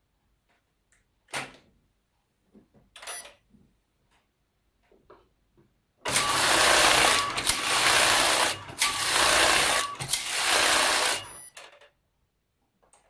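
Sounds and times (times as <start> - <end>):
knitting machine carriage rattling: 6.1 - 11.8.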